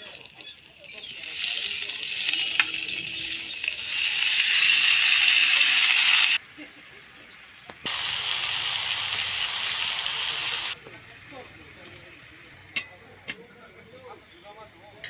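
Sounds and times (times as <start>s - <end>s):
eggs sizzling in oil: 0.0s - 6.4s, 7.8s - 11.1s.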